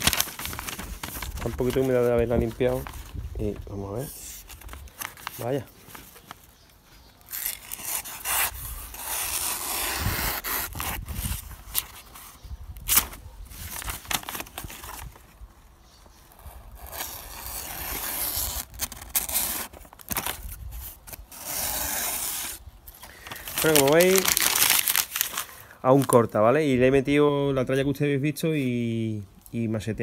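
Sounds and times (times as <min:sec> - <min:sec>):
knife slicing paper: 0:07.3 - 0:12.0, 0:16.3 - 0:20.2.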